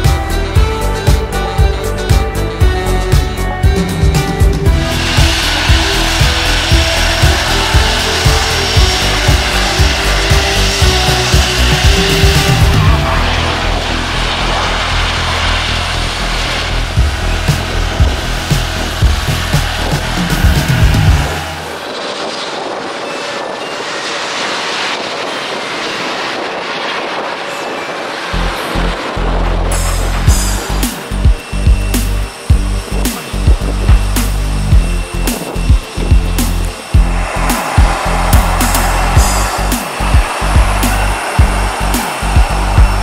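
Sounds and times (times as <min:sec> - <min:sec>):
music with a steady beat: 0:00.0 - 0:13.3, 0:17.0 - 0:21.6, 0:29.7 - 0:43.0
held synth notes: 0:00.0 - 0:21.9, 0:28.3 - 0:43.0
jet aircraft noise: 0:00.0 - 0:43.0.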